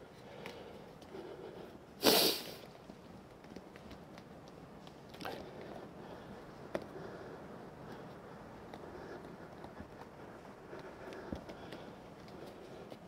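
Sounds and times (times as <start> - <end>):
small crackles: 0.0 - 13.0
hands folding rubber patch: 2.6 - 7.0.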